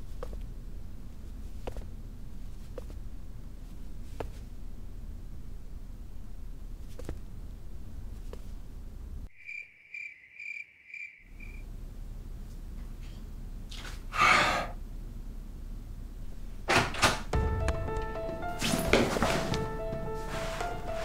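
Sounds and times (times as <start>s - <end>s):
music notes: 17.3s - 21.0s.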